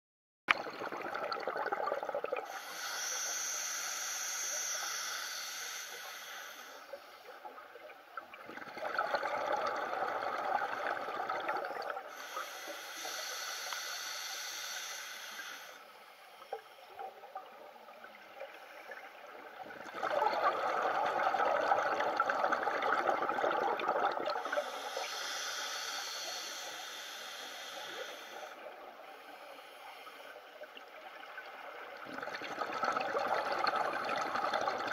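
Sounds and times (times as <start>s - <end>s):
exhaled bubbles rushing: 0.5s - 2.4s, 8.3s - 12.1s, 19.5s - 24.5s, 31.8s - 34.9s
hissing regulator inhalation: 2.5s - 7.2s, 12.1s - 17.0s, 24.4s - 30.5s.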